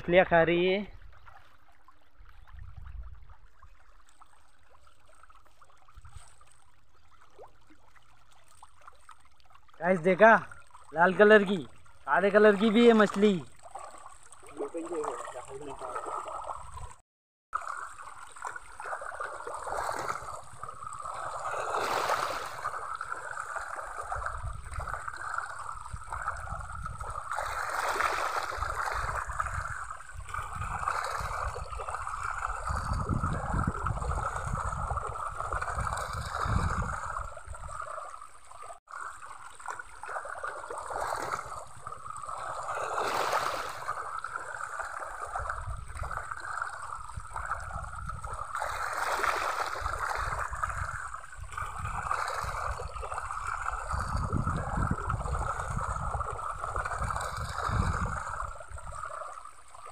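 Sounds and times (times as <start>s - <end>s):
fish splashing at the surface: 11.6s - 17.0s, 17.6s - 59.9s.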